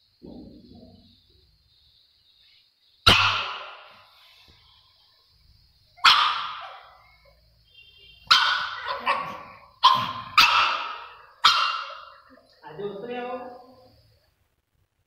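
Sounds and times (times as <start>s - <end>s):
dog barking with echo: 3.1s - 3.9s, 6.0s - 7.0s, 8.3s - 12.4s.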